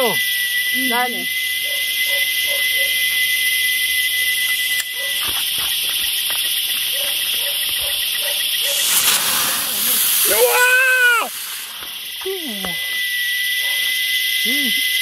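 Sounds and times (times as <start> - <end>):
crickets and insects chirping: 0.0 - 15.0
firework rushing hiss: 8.5 - 12.4.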